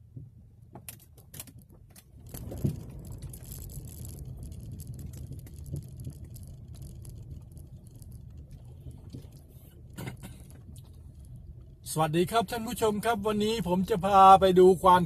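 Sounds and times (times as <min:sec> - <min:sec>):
car engine and tyres rumbling: 0:00.0 - 0:15.0
car rattling on rough road: 0:00.0 - 0:15.0.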